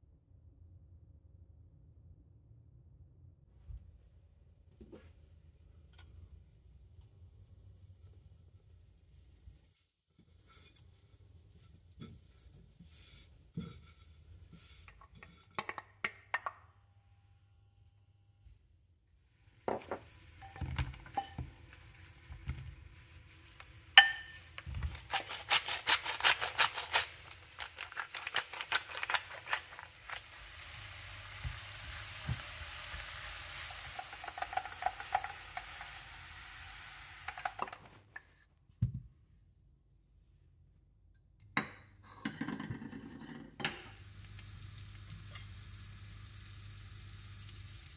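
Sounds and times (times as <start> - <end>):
mushrooms sizzling: 19.4 - 38.0, 43.8 - 47.9
mushrooms clattering in pan: 19.6 - 36.1.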